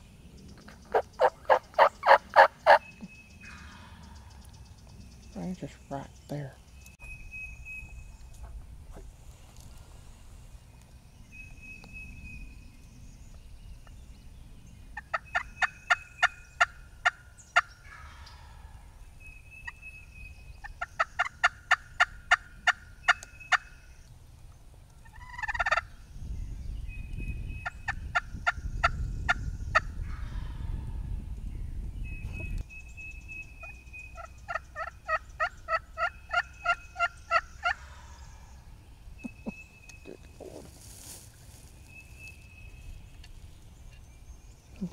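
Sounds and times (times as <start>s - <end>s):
turkey rattling gobble: 0.9s - 2.8s, 25.0s - 25.8s, 34.2s - 38.2s
turkey yelps: 0.9s - 2.8s, 25.1s - 25.8s, 33.6s - 38.1s.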